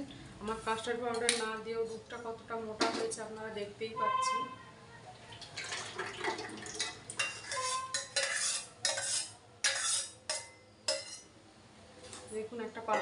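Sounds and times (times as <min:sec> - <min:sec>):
spoon scraping steel saucepan: 0:06.8 - 0:11.3.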